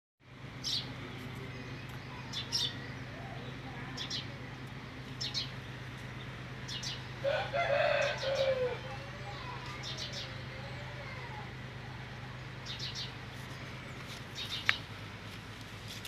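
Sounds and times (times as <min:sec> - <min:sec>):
small birds chirping: 0:00.4 - 0:16.0
rooster call: 0:07.2 - 0:12.2.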